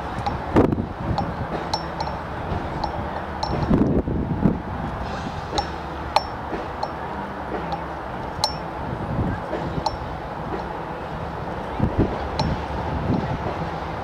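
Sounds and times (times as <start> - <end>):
wind buffeting microphone: 0.0 - 14.0
short metallic pings: 1.2 - 3.8, 5.5 - 7.0, 7.6 - 8.8, 9.9 - 10.1.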